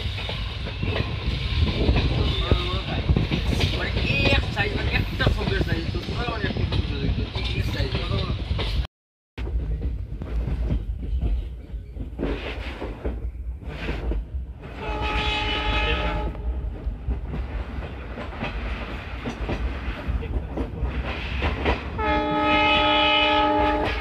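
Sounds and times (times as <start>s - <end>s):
wheels clattering on rails: 0.0s - 8.8s, 9.4s - 15.4s, 16.7s - 22.0s
train rumbling: 0.0s - 24.0s
train horn chord: 14.8s - 16.5s, 22.0s - 24.0s.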